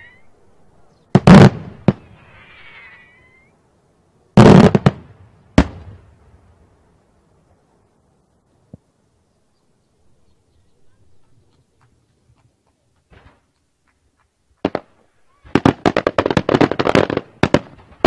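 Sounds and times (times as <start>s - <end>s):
faint crackling hiss: 0.0s - 18.0s
sharp firework crack: 1.1s - 2.7s, 4.4s - 6.2s, 14.6s - 18.0s.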